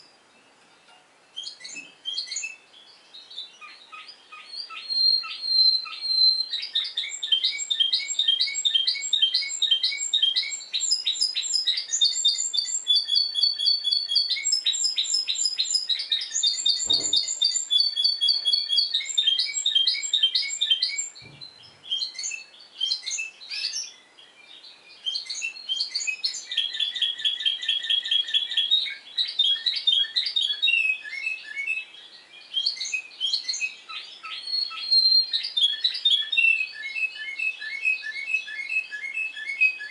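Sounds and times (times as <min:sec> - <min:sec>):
canary singing: 0:00.0 - 0:39.9.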